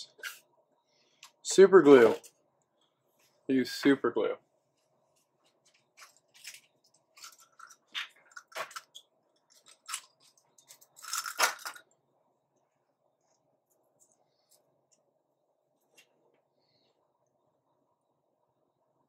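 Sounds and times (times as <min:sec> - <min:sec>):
small objects crinkling and clicking: 0:05.6 - 0:12.0.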